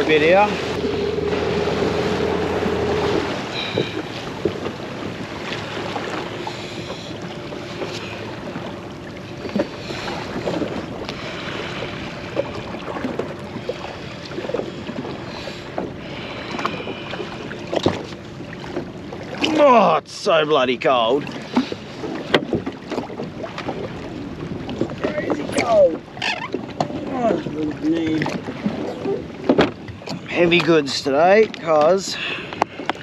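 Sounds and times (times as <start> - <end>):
wind on microphone: 0.0 - 6.2
jet ski engine running: 0.0 - 20.8
water slapping against hull: 0.0 - 33.0.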